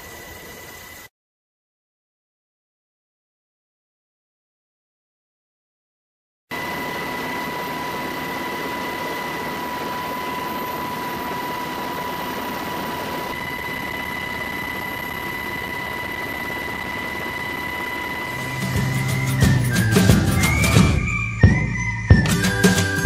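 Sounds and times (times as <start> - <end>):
aircraft engines droning: 6.5 - 23.0.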